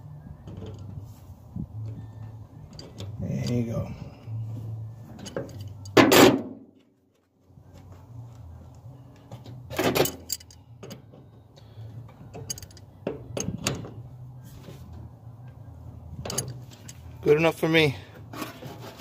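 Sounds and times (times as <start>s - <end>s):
low hum: 0.0s - 17.2s
tools clanking on metal: 9.7s - 11.0s, 12.3s - 13.9s.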